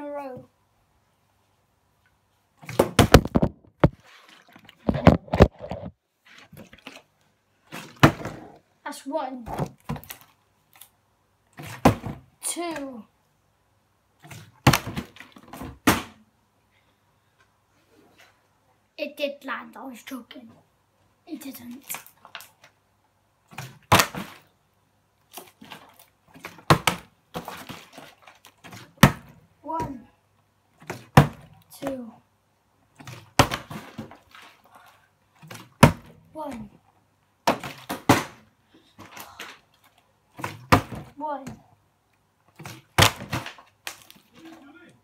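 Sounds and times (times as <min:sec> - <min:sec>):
water sloshing: 0:02.6 - 0:08.3, 0:25.2 - 0:29.4, 0:32.9 - 0:36.8
plastic bottle thudding on hard surface: 0:02.7 - 0:04.0, 0:04.8 - 0:05.9, 0:07.8 - 0:08.4, 0:33.3 - 0:34.2, 0:35.5 - 0:36.1, 0:37.4 - 0:38.4, 0:40.4 - 0:41.1, 0:42.6 - 0:43.6.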